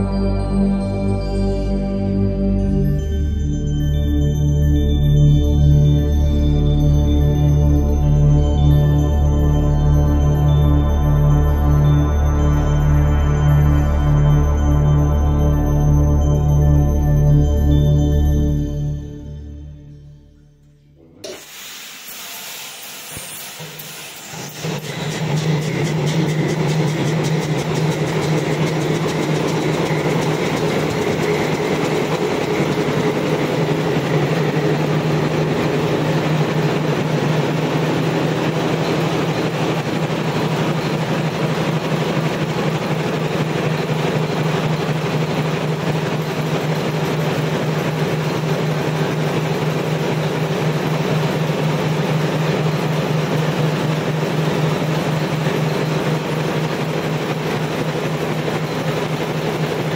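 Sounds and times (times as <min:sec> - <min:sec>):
rail vehicle motor hum: 0:21.0 - 0:59.9
wheels clattering on rail: 0:24.6 - 0:59.9.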